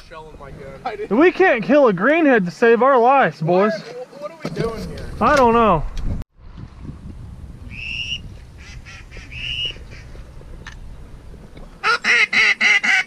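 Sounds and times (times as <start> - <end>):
duck quacking: 11.8 - 13.0.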